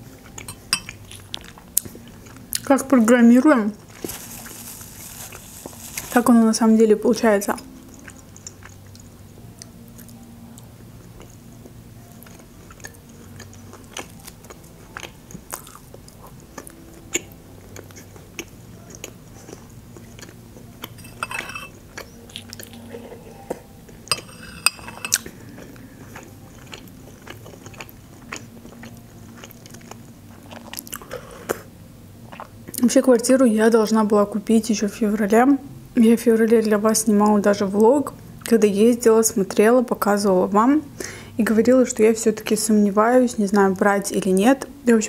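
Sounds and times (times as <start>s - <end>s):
spoon clinking glass bowl: 0.4s - 1.0s, 21.0s - 21.8s, 24.1s - 25.2s
close chewing with mouth clicks: 12.0s - 21.0s, 21.8s - 23.4s, 25.1s - 31.6s.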